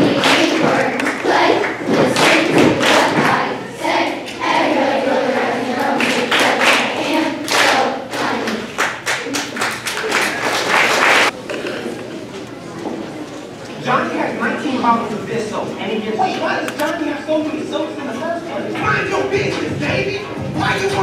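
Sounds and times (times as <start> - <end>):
children's choir singing: 0.0 - 9.6.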